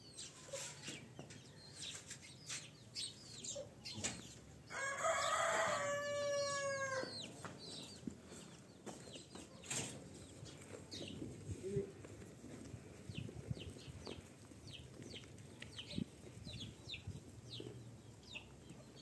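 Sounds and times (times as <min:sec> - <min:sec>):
hens clucking and chicks cheeping: 0:00.0 - 0:19.0
rooster crowing: 0:04.7 - 0:07.2.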